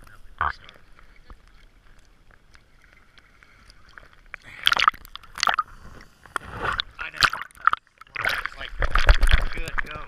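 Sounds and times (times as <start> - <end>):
water splashing on camera housing: 6.4 - 10.0.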